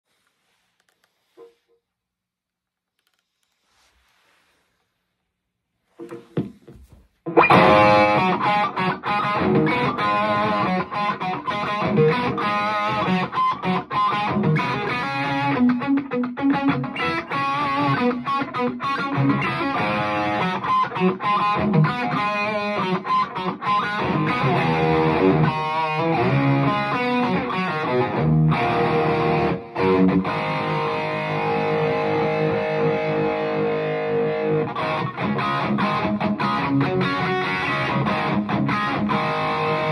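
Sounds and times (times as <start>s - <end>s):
overdriven electric guitar riffs: 7.2s - 39.9s.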